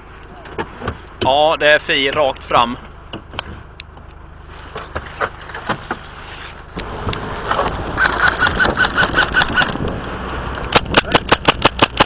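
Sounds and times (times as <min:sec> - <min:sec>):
vehicle engine running: 0:00.0 - 0:12.0
sharp clicks: 0:06.8 - 0:12.0
rapid airsoft rifle shots: 0:08.0 - 0:09.8, 0:10.7 - 0:12.0.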